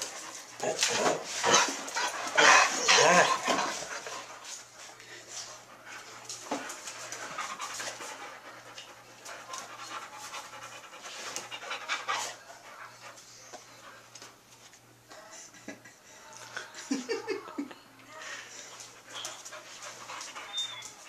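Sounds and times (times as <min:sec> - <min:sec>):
dog panting: 0:00.0 - 0:14.3, 0:18.5 - 0:21.0.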